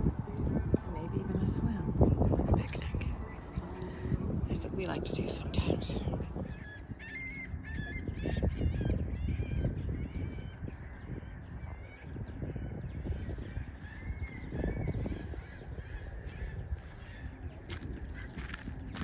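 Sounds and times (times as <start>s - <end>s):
water birds honking: 0.0s - 9.0s, 13.2s - 19.0s
steady low rumble: 0.0s - 19.0s.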